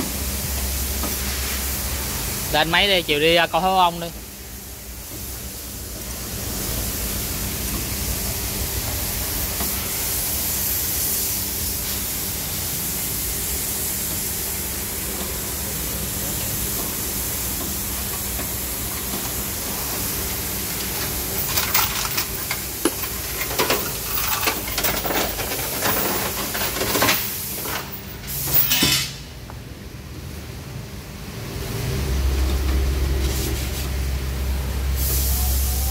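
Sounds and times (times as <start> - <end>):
steady hiss: 0.0 - 29.3, 33.0 - 35.9
metal clinks and knocks: 21.3 - 28.0.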